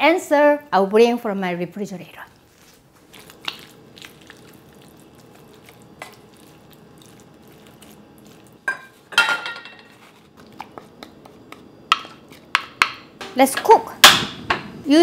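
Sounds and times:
metal bowl clanking: 0:08.6 - 0:10.0.

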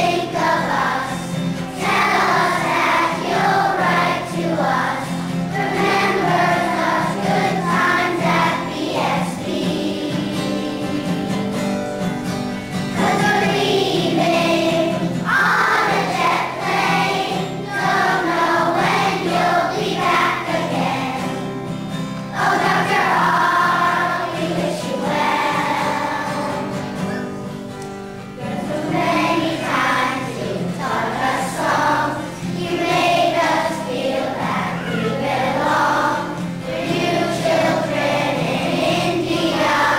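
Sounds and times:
children's choir singing: 0:00.0 - 0:39.9.

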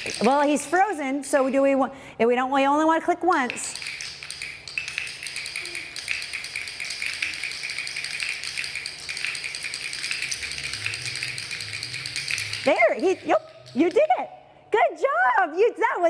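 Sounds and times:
training clickers clicking rapidly: 0:00.0 - 0:00.9, 0:03.3 - 0:14.3.

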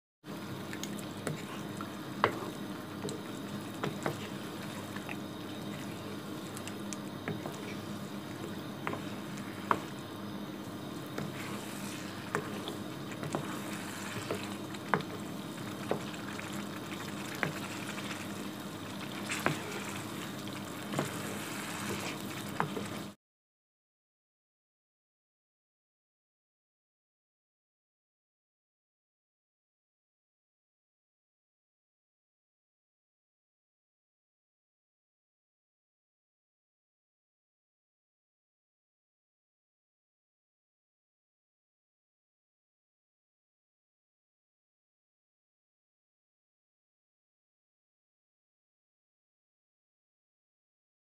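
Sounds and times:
curry sizzling and bubbling: 0:00.3 - 0:23.2.

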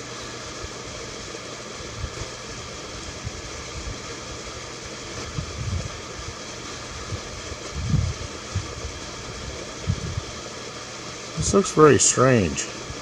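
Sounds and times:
steady background hiss: 0:09.0 - 0:13.0.

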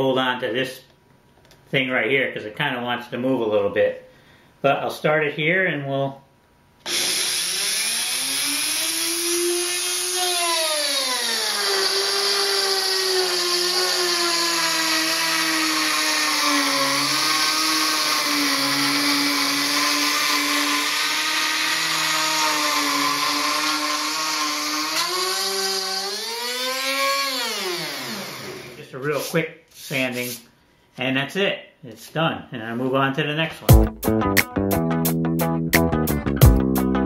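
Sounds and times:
rotary tool cutting wood: 0:06.9 - 0:28.8.

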